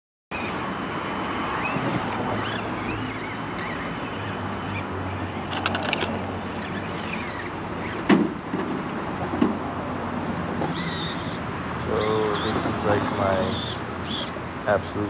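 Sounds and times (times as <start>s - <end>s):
small electric motor and gears: 0.3s - 8.1s.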